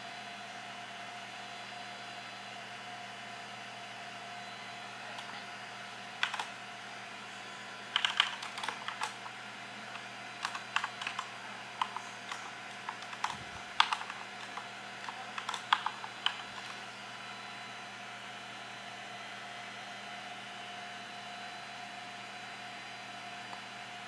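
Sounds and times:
steady background hum: 0.0s - 20.0s
typing on keyboard: 6.2s - 6.6s, 7.9s - 16.8s.

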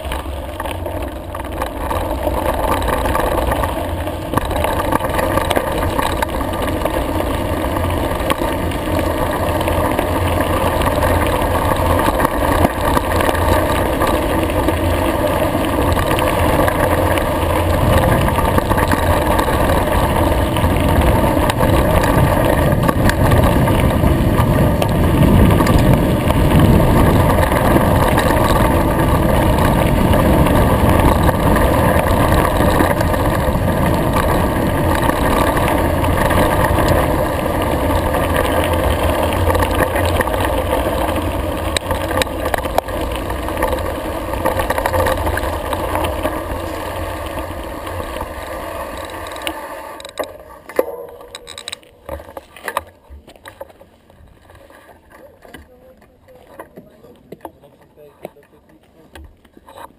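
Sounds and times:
bike rattling: 0.0s - 59.9s
bike tyres on gravel: 0.0s - 59.9s
wind rushing on microphone: 13.3s - 47.7s.

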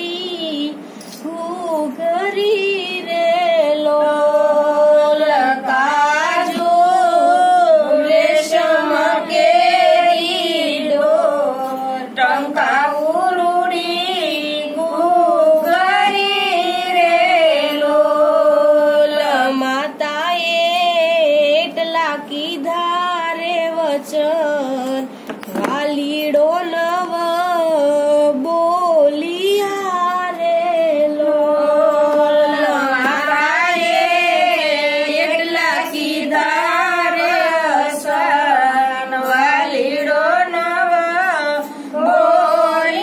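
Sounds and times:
woman singing unaccompanied: 0.0s - 43.0s.

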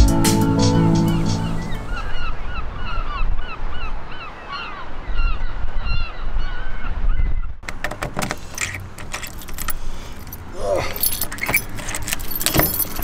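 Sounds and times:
keys jingling: 8.3s - 13.0s.

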